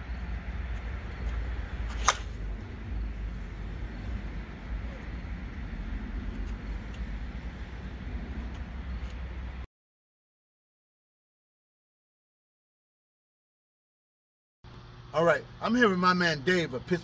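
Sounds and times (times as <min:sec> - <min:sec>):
low outdoor rumble: 0:00.0 - 0:09.7
bat striking ball: 0:01.9 - 0:02.4.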